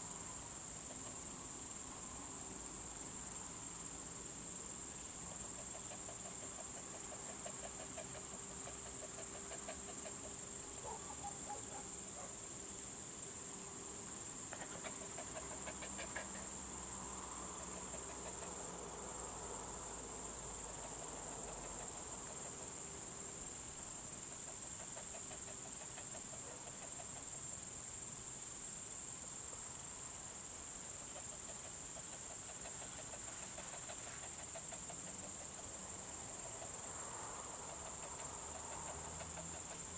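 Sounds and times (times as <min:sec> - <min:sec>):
crickets trilling: 0:00.0 - 0:39.9
rapid pulsed chirping: 0:05.4 - 0:11.8.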